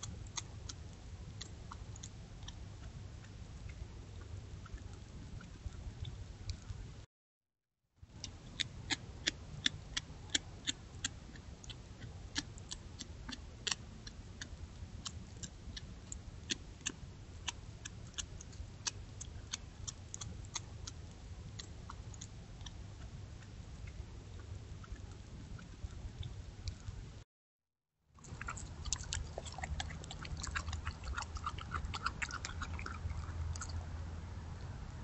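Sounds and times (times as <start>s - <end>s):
coyote crunching bones: 28.2s - 33.9s.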